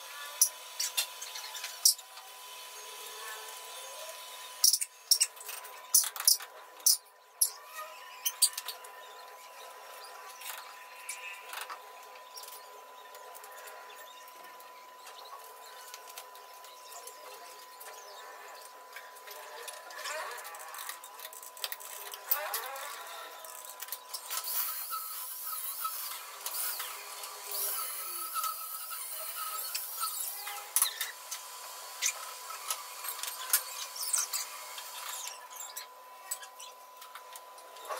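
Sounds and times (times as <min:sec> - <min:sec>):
arc welding hiss: 0:24.4 - 0:35.3.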